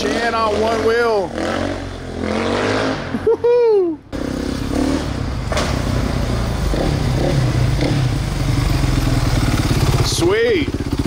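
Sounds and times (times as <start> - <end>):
dirt bike engine idling: 6.0 - 11.0.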